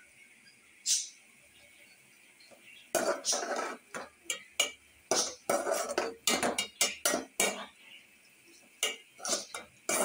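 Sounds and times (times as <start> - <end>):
spoon scraping steel pot: 2.9 - 7.8, 8.8 - 10.0.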